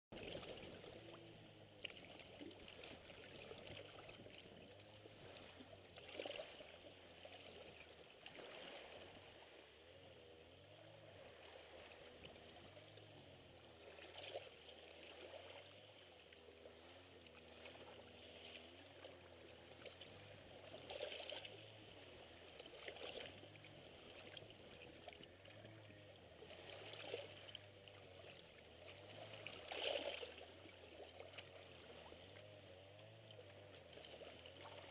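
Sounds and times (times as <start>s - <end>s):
small waves lapping on rocks: 0.1s - 34.9s.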